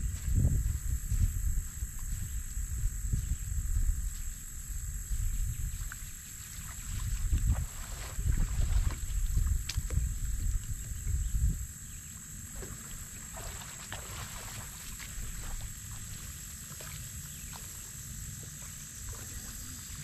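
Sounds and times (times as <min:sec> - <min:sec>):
wind rumbling on microphone: 0:00.0 - 0:17.8
insects droning: 0:00.0 - 0:20.0.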